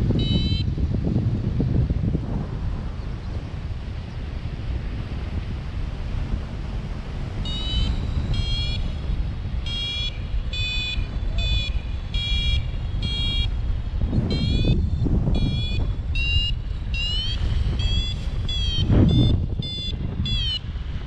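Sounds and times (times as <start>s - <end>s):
variometer beeping: 0.0s - 0.8s, 7.3s - 20.8s
wind rushing over microphone: 0.0s - 21.0s.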